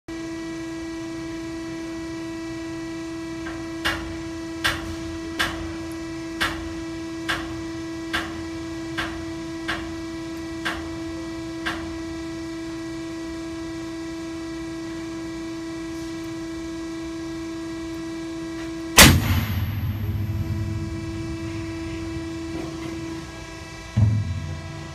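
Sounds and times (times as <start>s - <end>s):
machine hum: 0.1s - 24.9s
sharp cracks: 19.0s - 23.1s
loud bang with rumbling tail: 19.0s - 24.9s.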